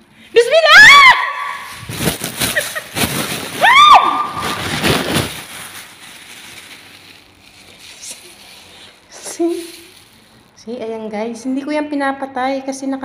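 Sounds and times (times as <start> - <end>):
plastic bag rustling: 1.4 - 10.8.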